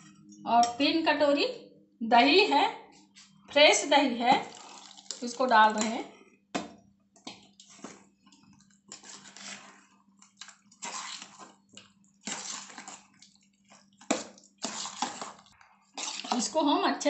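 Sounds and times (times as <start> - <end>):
spoon squelching in wet rice: 16.0 - 16.5.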